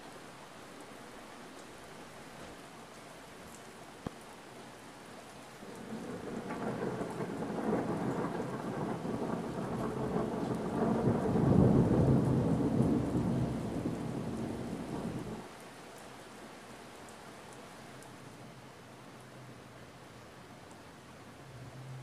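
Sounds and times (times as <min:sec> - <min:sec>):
steady rain: 0:00.0 - 0:22.0
rolling thunder: 0:05.7 - 0:15.4.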